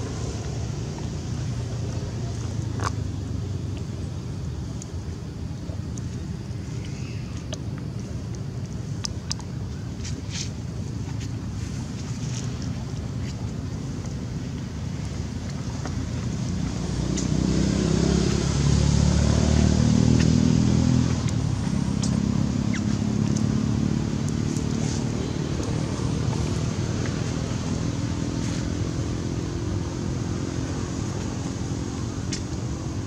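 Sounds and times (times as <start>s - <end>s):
vehicle engine running: 11.0s - 33.0s.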